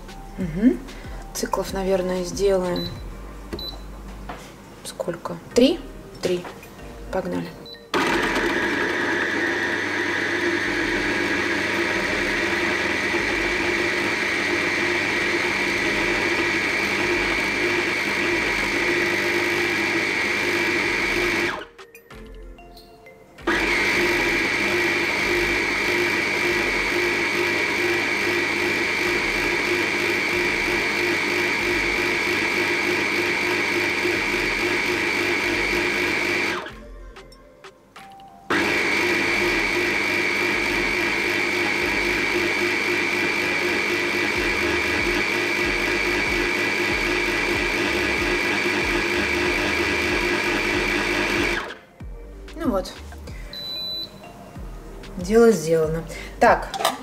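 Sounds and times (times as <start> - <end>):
blender motor whining: 7.9 - 21.7, 23.4 - 36.7, 38.5 - 51.8.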